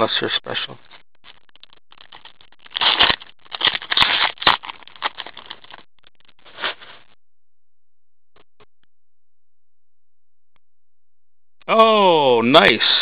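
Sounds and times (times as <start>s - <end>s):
wrapper crinkling: 1.2s - 7.0s.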